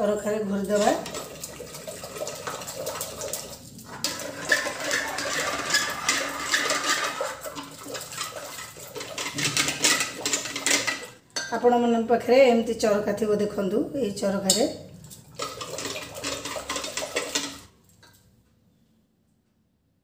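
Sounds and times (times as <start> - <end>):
wooden churner sloshing through dal: 0.0 - 11.2, 14.8 - 17.8.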